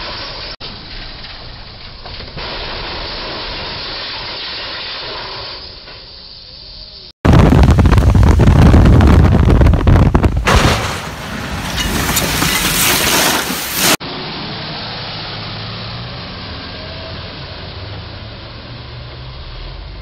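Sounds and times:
hiss of falling debris: 0.0 - 8.5, 10.4 - 14.0
street noise: 5.6 - 20.0
metal crashing and rumbling: 7.3 - 14.0.

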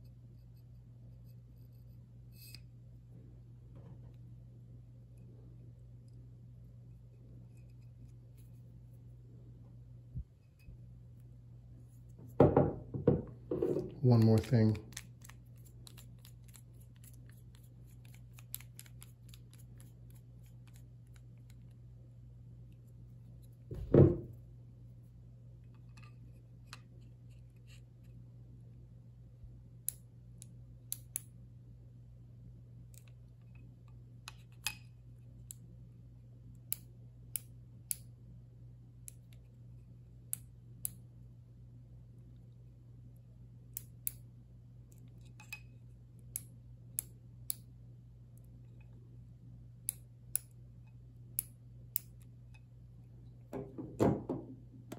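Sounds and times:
steady low hum: 0.0 - 54.9
loud dull thump: 23.7 - 24.3.

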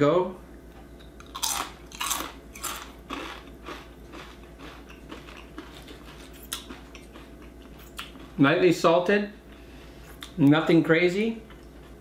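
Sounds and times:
potato chip crunching: 1.2 - 8.4.

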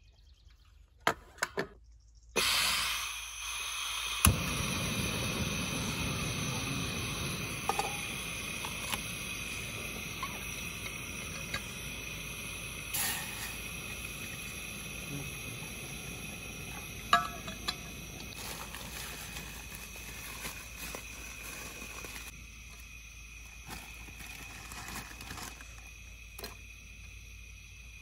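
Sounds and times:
gas stove burner hissing: 2.4 - 28.0
metal pot clink: 17.1 - 17.9.

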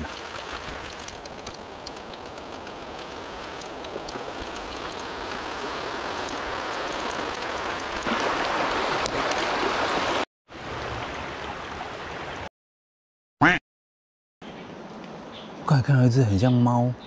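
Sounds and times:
creek flowing: 0.0 - 12.5.

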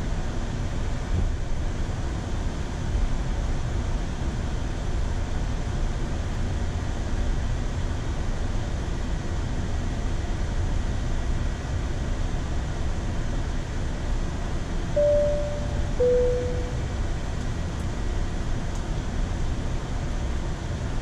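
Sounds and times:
aircraft low rumble and hiss: 0.0 - 21.0
two-note chime: 15.0 - 16.9.

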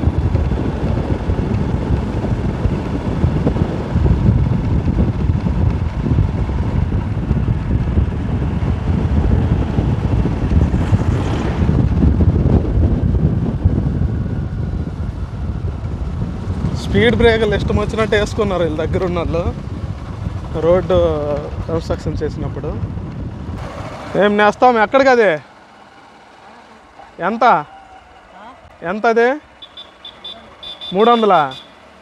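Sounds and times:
wind buffeting microphone: 0.0 - 25.5
motorcycle rumble: 0.0 - 32.0
road noise: 0.0 - 32.0.

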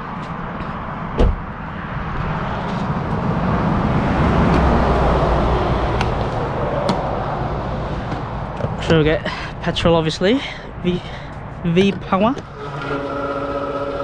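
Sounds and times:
road traffic passing: 0.0 - 14.0
sharp thump: 1.2 - 1.4.

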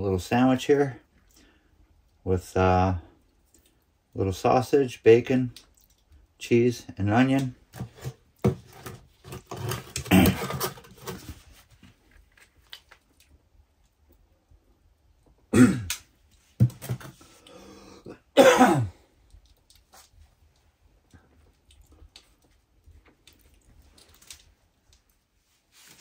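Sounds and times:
man clearing throat and coughing: 10.0 - 10.6, 15.5 - 16.0, 18.1 - 19.1.

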